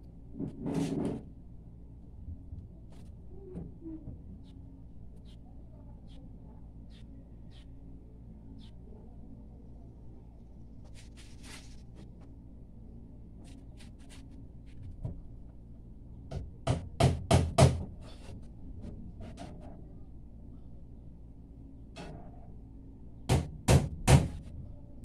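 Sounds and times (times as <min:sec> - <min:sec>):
steady low hum: 0:00.0 - 0:25.0
hammer knocking on wood: 0:16.3 - 0:17.9, 0:23.3 - 0:24.4.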